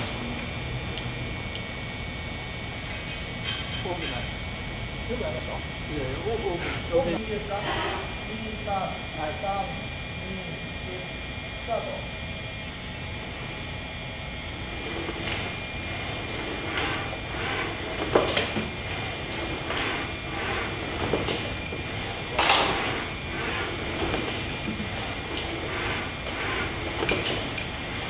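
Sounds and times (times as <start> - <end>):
robot mechanical hum: 13.1 - 28.0.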